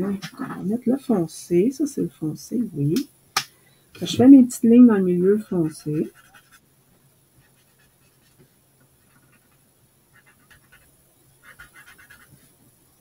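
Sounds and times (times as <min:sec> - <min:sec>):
marker scratching on card: 0:05.5 - 0:06.6, 0:07.4 - 0:12.5.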